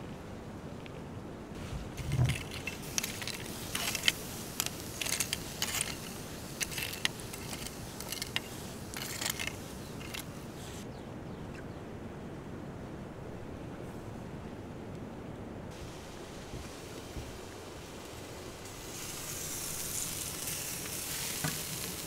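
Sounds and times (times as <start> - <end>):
steady background hiss: 0.0 - 22.0
metal tongs clinking and scraping: 2.0 - 10.3.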